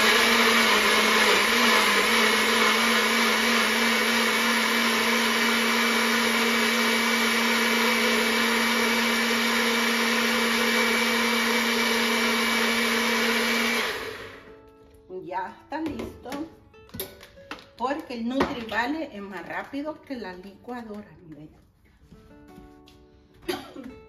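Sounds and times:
blender running: 0:00.0 - 0:14.5.

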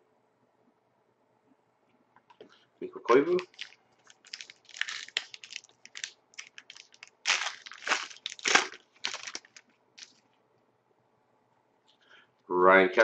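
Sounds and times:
foil pack crinkling: 0:03.1 - 0:10.2.

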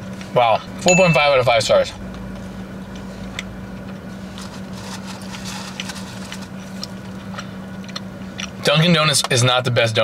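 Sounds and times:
car engine humming in cabin: 0:00.0 - 0:10.0
chewing clicks: 0:06.8 - 0:08.6.

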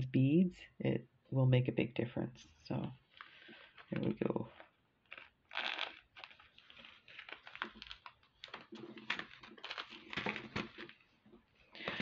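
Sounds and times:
plastic bag of glass beads clicking: 0:03.1 - 0:11.0.

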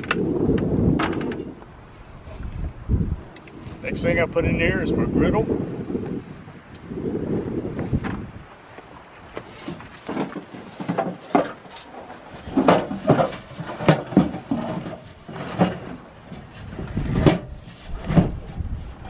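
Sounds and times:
case knocking and scraping on truck bed: 0:08.0 - 0:08.3, 0:09.4 - 0:19.0.

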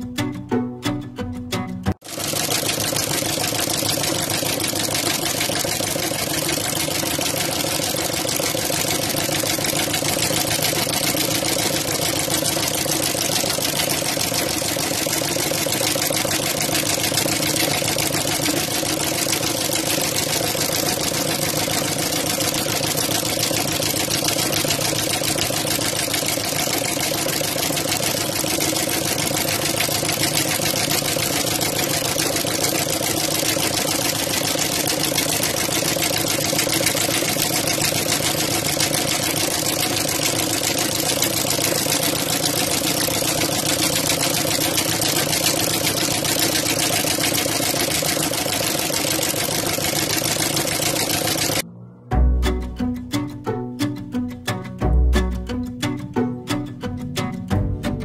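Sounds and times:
embroidery machine stitching: 0:02.0 - 0:51.6.

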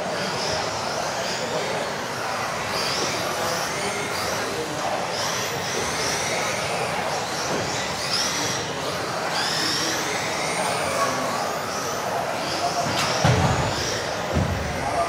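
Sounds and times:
high-pitched motor whines: 0:00.0 - 0:15.0.

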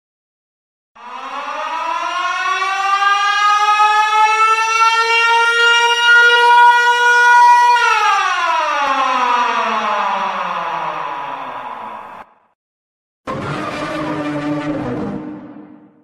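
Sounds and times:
siren wail: 0:01.0 - 0:12.5, 0:13.3 - 0:15.8.

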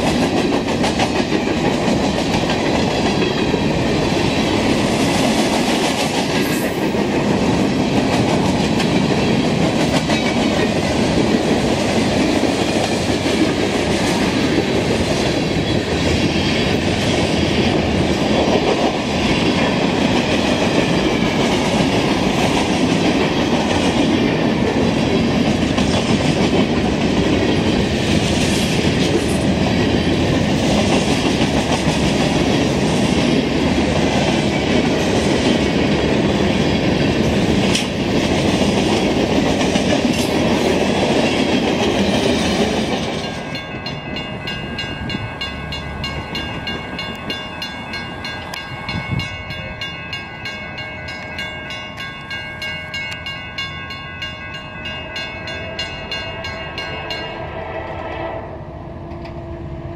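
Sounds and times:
freight cars rolling on rails: 0:00.0 - 0:58.0
diesel locomotive: 0:00.0 - 0:59.9.

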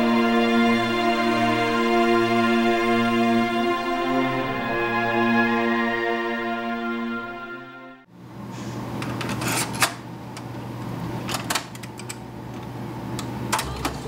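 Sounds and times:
music: 0:00.0 - 0:08.1.

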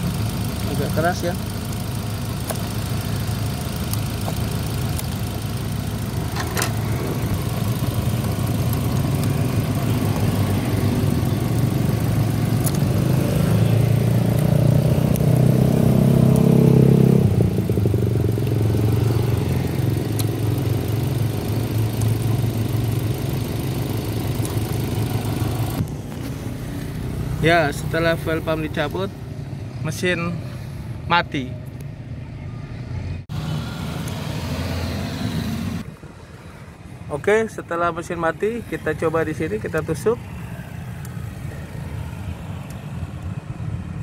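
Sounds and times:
car engine idling: 0:00.0 - 0:30.2.

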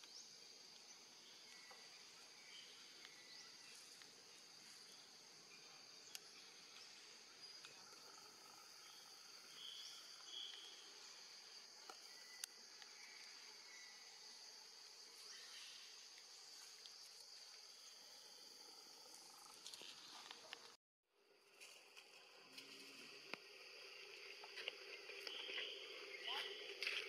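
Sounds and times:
insects droning: 0:00.0 - 0:27.0.

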